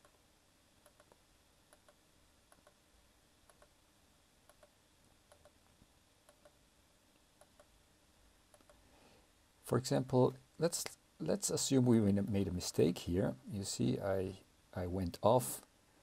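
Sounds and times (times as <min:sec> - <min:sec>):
faint computer mouse clicks: 0:00.0 - 0:00.2, 0:00.8 - 0:02.8, 0:03.5 - 0:03.8, 0:04.5 - 0:05.6, 0:06.2 - 0:06.6, 0:07.4 - 0:07.7, 0:08.5 - 0:08.8.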